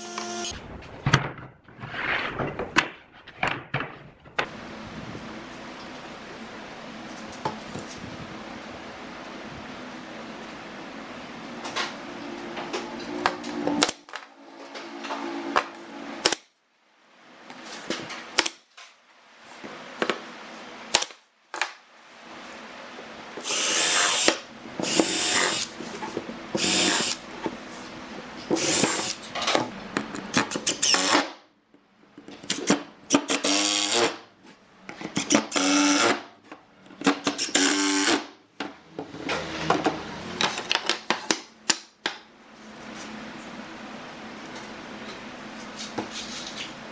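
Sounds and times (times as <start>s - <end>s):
cordless drill drilling into wood: 23.4s - 25.7s, 26.6s - 27.2s.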